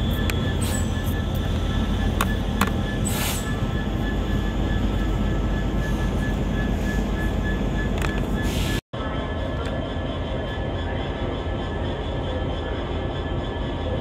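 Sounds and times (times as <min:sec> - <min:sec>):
diesel locomotive engine rumble: 0:00.0 - 0:14.0
high wheel squeal: 0:00.0 - 0:14.0.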